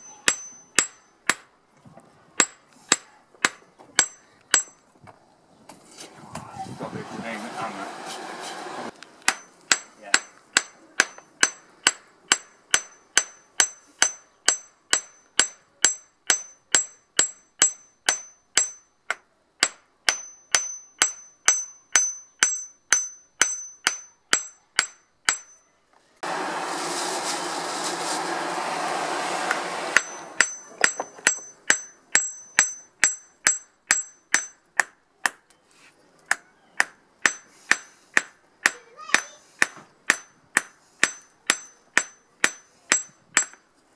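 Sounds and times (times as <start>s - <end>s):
hammer striking steel on anvil: 0.0s - 1.6s, 2.4s - 4.9s, 9.2s - 25.8s, 29.5s - 35.4s, 36.3s - 43.7s
steady rushing noise: 6.5s - 9.0s.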